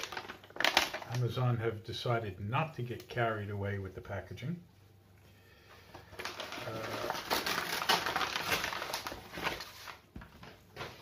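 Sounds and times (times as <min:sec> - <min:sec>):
paper packaging rustling and crinkling: 0:00.0 - 0:01.6, 0:05.8 - 0:11.0.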